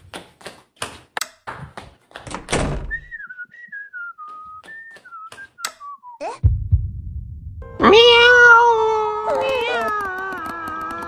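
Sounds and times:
whistled tune: 2.9 - 6.3.

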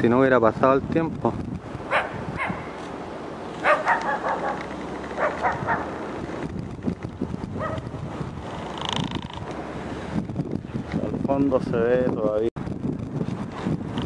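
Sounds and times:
dog barking: 1.9 - 2.8, 3.6 - 6.0, 7.6 - 7.8.

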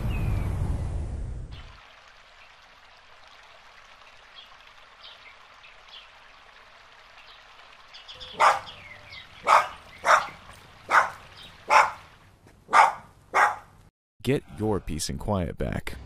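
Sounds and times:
water trickling: 1.5 - 12.4
bird chirps: 7.9 - 10.4
dog barking: 8.2 - 8.8, 9.4 - 12.0, 12.7 - 13.7.

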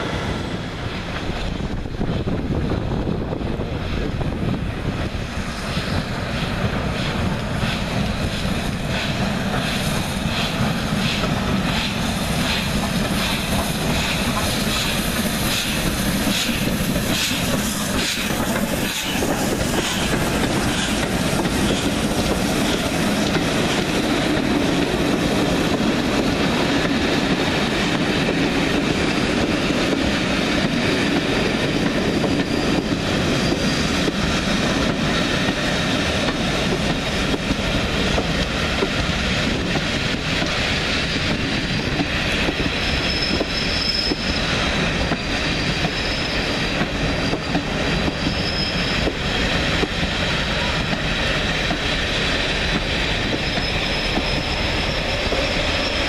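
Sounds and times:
train wheels rumbling on rails: 0.0 - 56.0
high wheel squeal: 14.9 - 20.9, 31.5 - 34.3, 40.8 - 49.4, 53.1 - 56.0.

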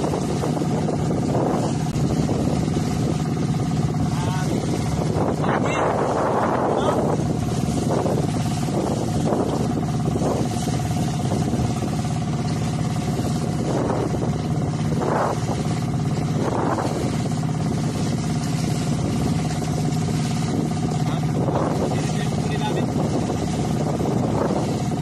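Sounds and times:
boat engine droning: 0.0 - 25.0.

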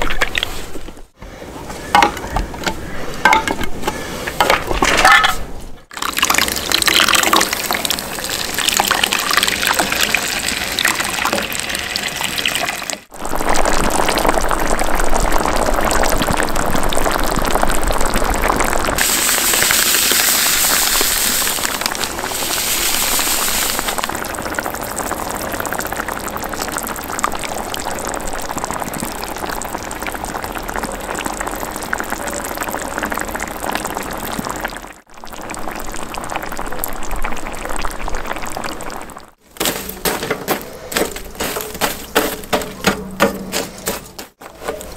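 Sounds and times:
juice pouring into metal pan: 5.9 - 17.7
bright hiss: 19.0 - 24.0.

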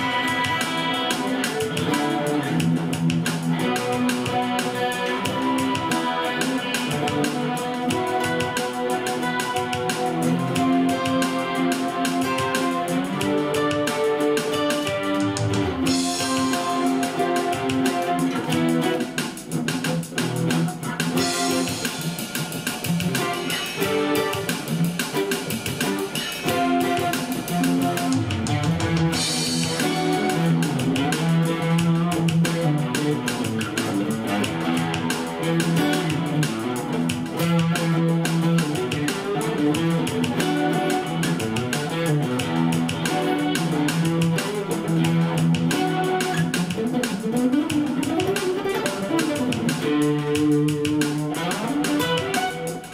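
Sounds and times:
overdriven funk guitar riff: 0.0 - 52.9.

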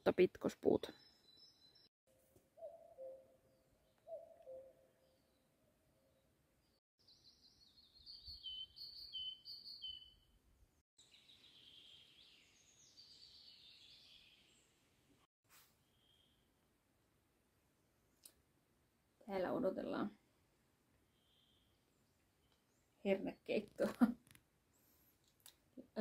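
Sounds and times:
songbird phrases: 7.1 - 10.2, 11.0 - 14.7.

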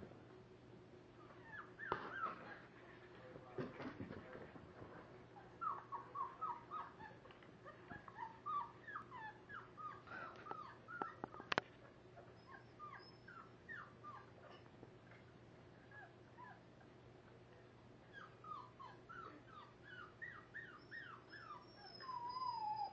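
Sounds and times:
dog whimpering: 1.2 - 2.7, 5.4 - 11.6, 12.2 - 14.6, 18.1 - 22.9.

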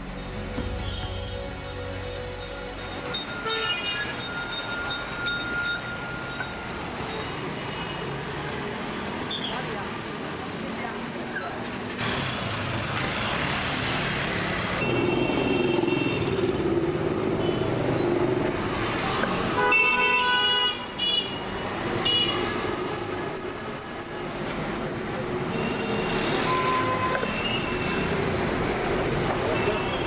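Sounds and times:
vehicles passing on street: 0.0 - 30.0
horns tooting: 0.1 - 7.1, 14.7 - 18.6, 19.4 - 24.1.

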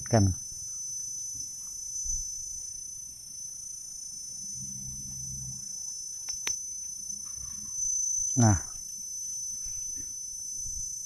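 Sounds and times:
faint low hum: 0.0 - 11.0
insects chorus: 0.0 - 11.0
sharp clicks: 6.2 - 6.6.

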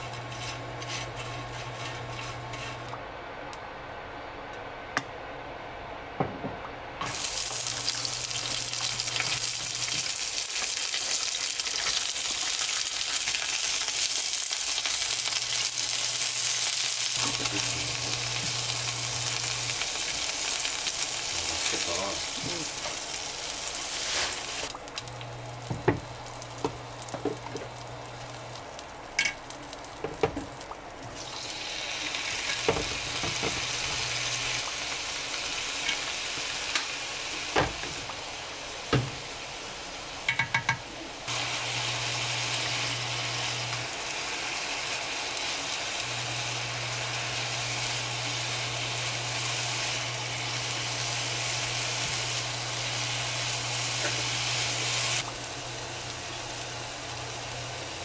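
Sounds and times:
food sizzling in a pan: 0.0 - 3.0, 7.0 - 58.0
utensil tapping and scraping: 0.0 - 3.0.

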